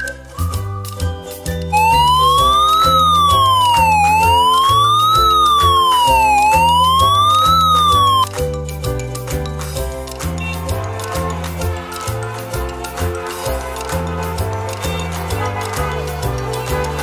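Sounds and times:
background music: 0.0 - 17.0
ambulance siren wailing: 1.8 - 8.3.

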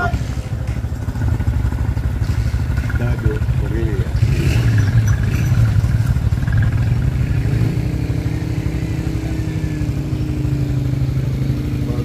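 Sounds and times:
motorcycle engine droning: 0.0 - 12.0.

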